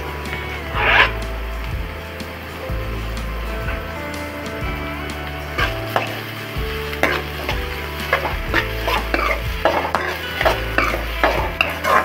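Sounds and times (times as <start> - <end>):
onions sizzling in oil: 4.7 - 12.0
metal ladle scraping a pan: 5.6 - 12.0.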